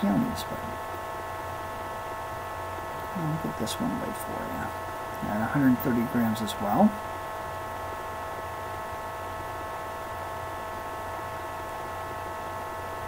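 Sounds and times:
faint high whining tones: 0:00.0 - 0:13.0
low electrical hum: 0:00.0 - 0:13.0.

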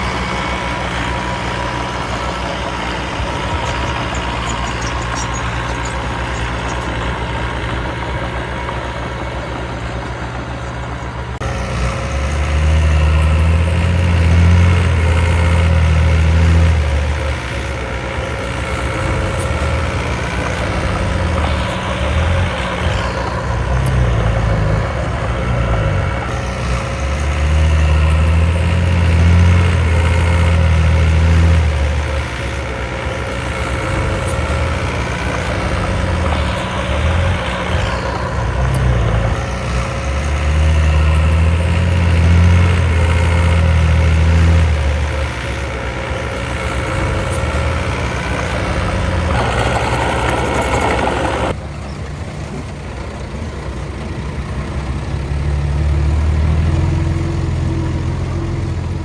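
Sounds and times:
diesel engine working: 0:00.0 - 0:59.0.

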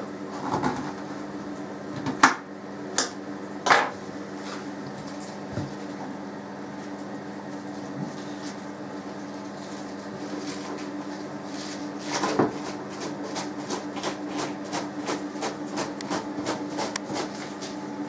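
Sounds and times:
cabbage rasping on grater: 0:11.4 - 0:17.8.

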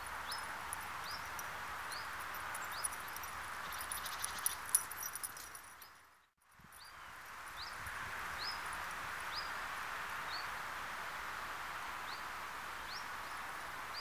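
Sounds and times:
bird chirping: 0:00.0 - 0:04.8
steady outdoor hiss: 0:00.0 - 0:14.0.

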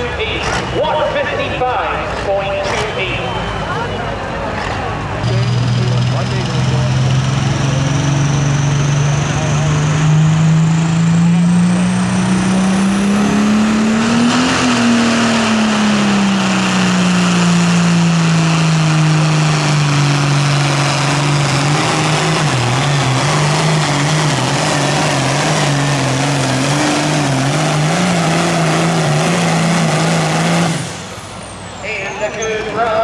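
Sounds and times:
tractor engine at full throttle: 0:00.0 - 0:33.0.

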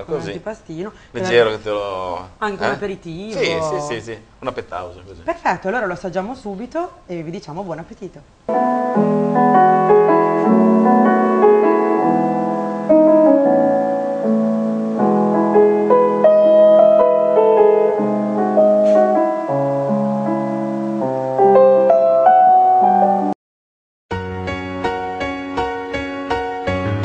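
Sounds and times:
piano music: 0:08.5 - 0:23.4, 0:24.1 - 0:27.0.

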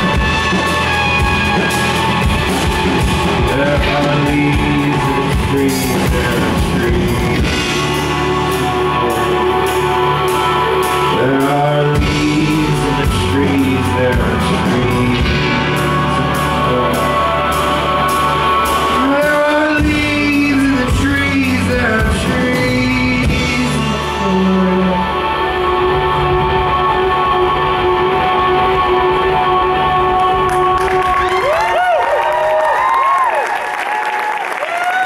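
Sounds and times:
drums and cymbals: 0:00.0 - 0:25.0
man singing: 0:00.0 - 0:31.4.

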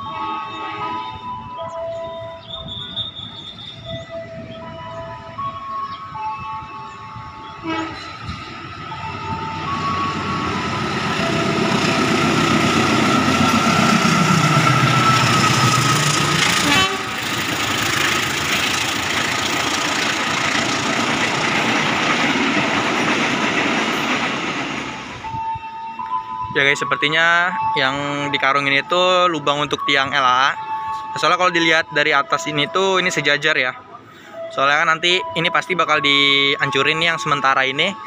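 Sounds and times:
train horn: 0:00.0 - 0:04.7, 0:06.5 - 0:18.7
diesel locomotive engine passing: 0:00.0 - 0:27.7
carriages rolling on rails: 0:01.4 - 0:26.1.

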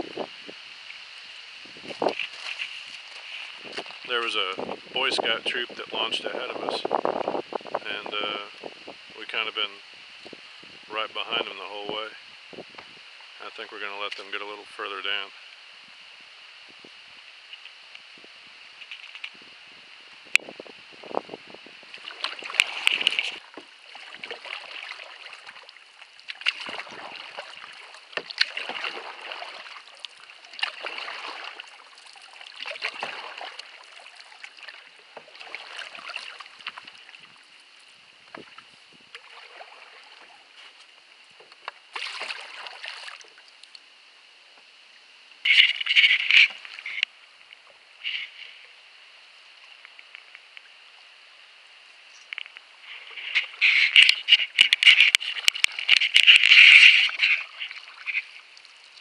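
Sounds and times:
paddle splashing in water: 0:01.7 - 0:04.8, 0:21.8 - 0:43.8, 0:45.5 - 0:48.8, 0:52.8 - 0:59.0.

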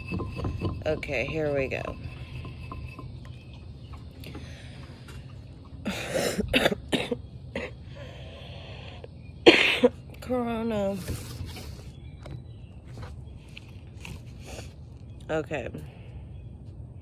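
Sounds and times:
woman coughing: 0:05.9 - 0:07.8, 0:09.4 - 0:10.0.

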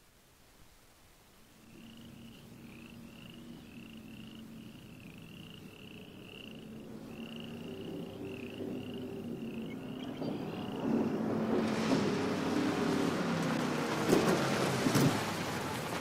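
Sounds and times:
high even chirping: 0:01.6 - 0:11.0
car engine hum: 0:01.6 - 0:16.0.

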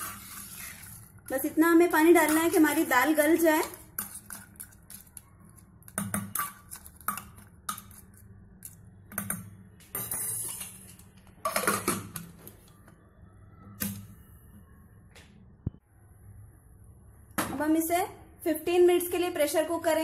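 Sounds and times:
metal spoon scraping a pot: 0:00.0 - 0:01.2, 0:02.1 - 0:08.3, 0:09.9 - 0:11.9.

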